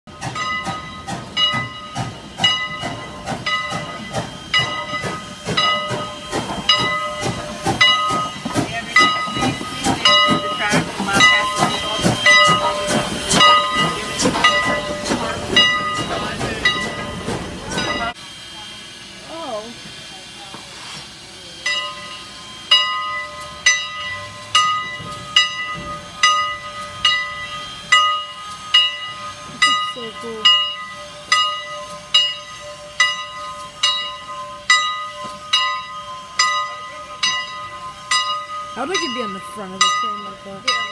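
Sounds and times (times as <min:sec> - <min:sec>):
locomotive bell ringing: 0:00.1 - 0:19.8, 0:21.2 - 0:40.9
hiss of steam: 0:01.1 - 0:23.6, 0:24.2 - 0:33.8.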